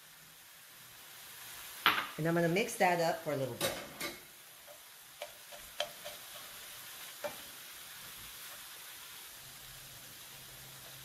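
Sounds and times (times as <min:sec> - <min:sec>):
food sizzling in a frying pan: 0:00.0 - 0:11.0
spatula knocking on pan: 0:05.2 - 0:06.2.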